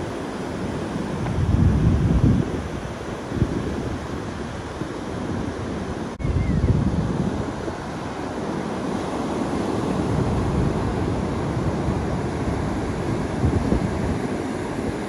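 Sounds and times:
ocean surf breaking on beach: 0:00.0 - 0:15.0
wind buffeting the microphone: 0:00.0 - 0:15.0.

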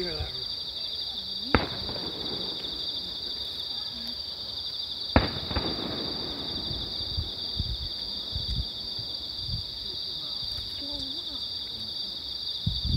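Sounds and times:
insects chirping: 0:00.0 - 0:12.9
firework bangs with echo: 0:01.5 - 0:03.0, 0:05.1 - 0:07.8.

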